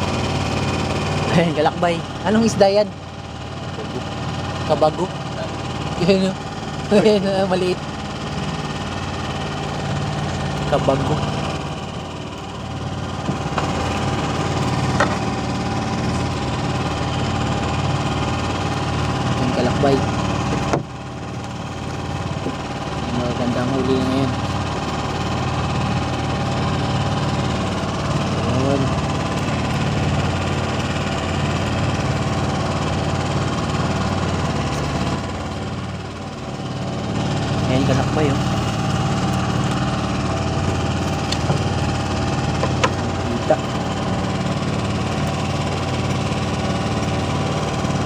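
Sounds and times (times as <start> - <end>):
small boat engine idling: 0.0 - 48.0.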